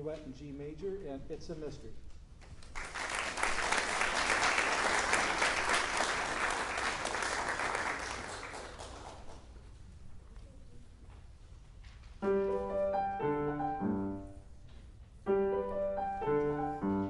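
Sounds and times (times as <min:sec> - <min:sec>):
audience applauding: 0:02.6 - 0:09.6.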